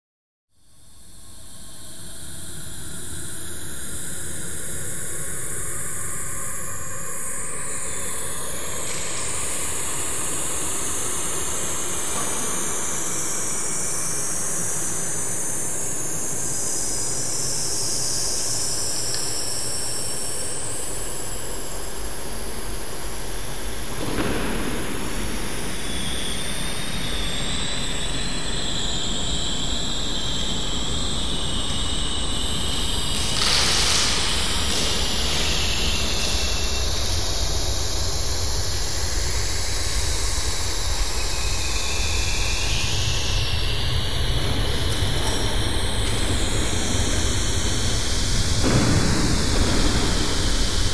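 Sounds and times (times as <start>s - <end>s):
dense rumbling noise with high hiss: 0.6s - 50.9s.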